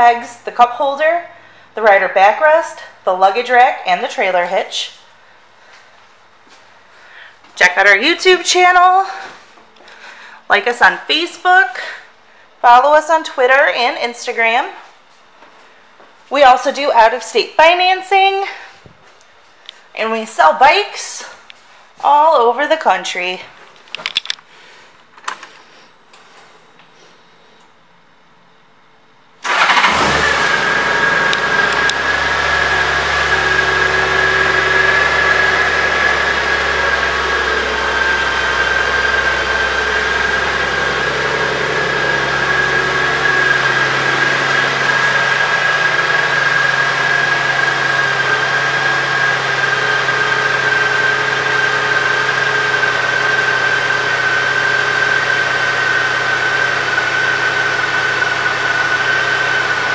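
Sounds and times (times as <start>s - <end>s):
motorcycle engine idling: 29.5s - 59.9s
high whine: 30.3s - 59.9s.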